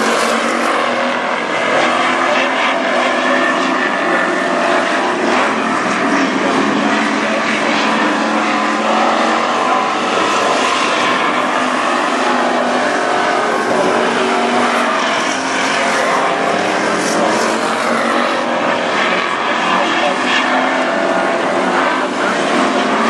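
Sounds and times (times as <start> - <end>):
race car engines droning: 0.0 - 23.0.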